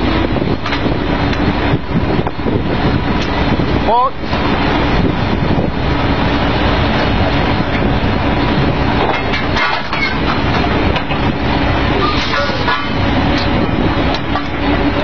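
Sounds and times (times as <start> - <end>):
drilling rig machinery running: 0.0 - 15.0
metallic clanks of drill pipe: 9.0 - 11.2, 12.0 - 14.7.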